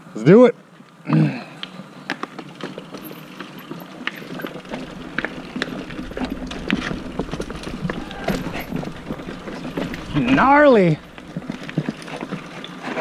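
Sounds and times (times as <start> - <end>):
mountain bike rattling over trail: 2.1 - 13.0
low rumble: 4.6 - 12.6.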